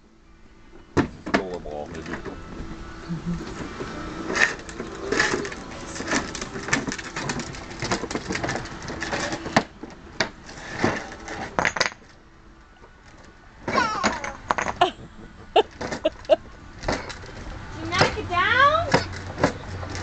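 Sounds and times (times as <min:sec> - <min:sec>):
plastic toy wheels rattling on bricks: 0:04.2 - 0:12.1, 0:13.0 - 0:20.0.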